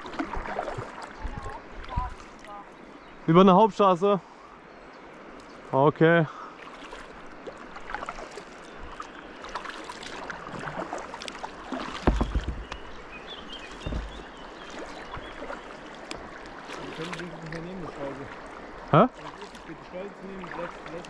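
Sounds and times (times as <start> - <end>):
water sloshing and splashing: 0.0 - 3.2, 6.4 - 21.0
knocks on kayak hull: 11.8 - 12.9, 13.7 - 14.3
low thumps: 11.9 - 13.0, 13.8 - 14.3.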